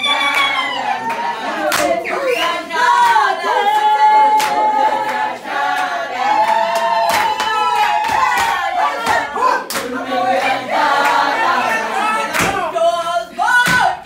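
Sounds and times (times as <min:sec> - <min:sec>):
women singing unaccompanied: 0:00.0 - 0:14.0
sharp handclaps: 0:00.3 - 0:02.0, 0:04.4 - 0:05.2, 0:05.8 - 0:09.9, 0:12.3 - 0:12.6.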